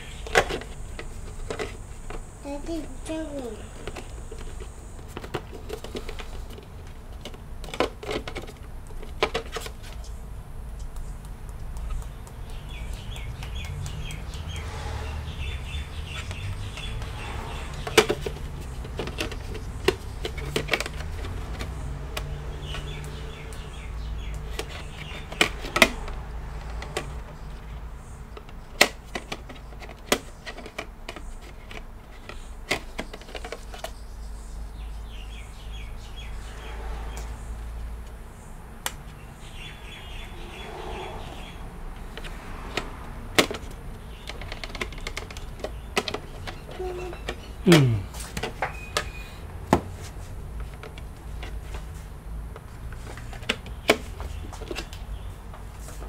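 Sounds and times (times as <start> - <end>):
bird chirping: 0.0 - 5.0, 9.8 - 28.8, 29.5 - 42.2, 43.9 - 49.4.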